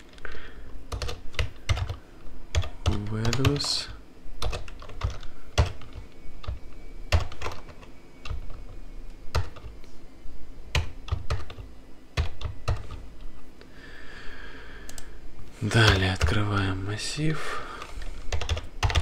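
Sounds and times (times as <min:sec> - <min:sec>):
keyboard typing: 0:00.9 - 0:09.8, 0:10.7 - 0:13.3, 0:14.8 - 0:15.1, 0:15.8 - 0:16.4, 0:17.8 - 0:19.0.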